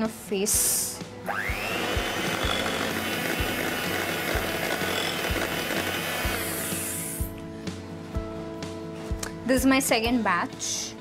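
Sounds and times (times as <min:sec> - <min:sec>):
electric mixer whirring: 0:01.3 - 0:07.3.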